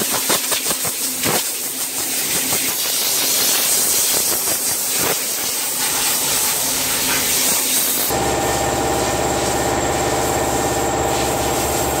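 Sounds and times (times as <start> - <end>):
compressed air spray hiss: 0.0 - 8.2, 8.8 - 12.0
machine hum with even tones: 5.4 - 12.0.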